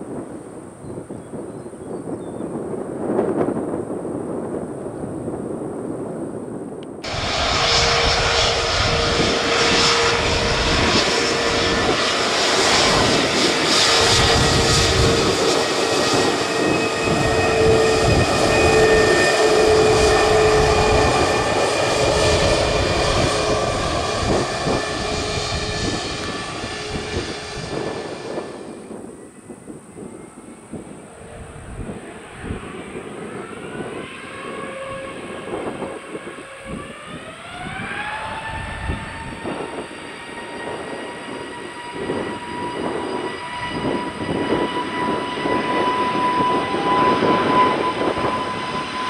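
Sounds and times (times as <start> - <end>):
jet engines whining: 2.5 - 49.0
low rumble: 6.9 - 29.9.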